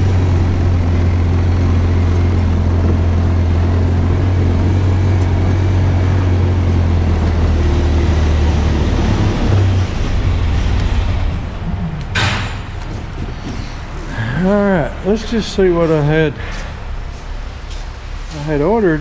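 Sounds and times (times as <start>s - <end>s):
utility vehicle engine droning: 0.0s - 19.0s.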